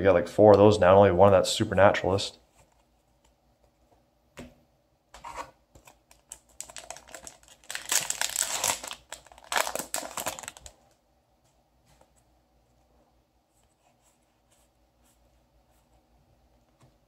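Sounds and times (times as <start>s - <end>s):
foil wrapper crinkling and tearing: 6.1s - 11.0s.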